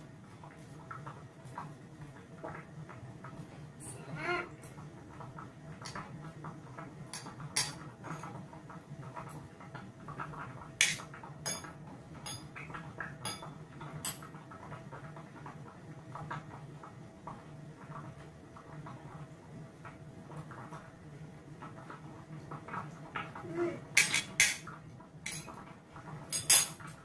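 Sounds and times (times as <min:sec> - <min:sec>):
cutlery clinking on ceramic bowl: 0:07.1 - 0:08.3, 0:10.8 - 0:12.6, 0:13.2 - 0:14.3, 0:24.0 - 0:24.7, 0:25.3 - 0:25.6, 0:26.3 - 0:26.8.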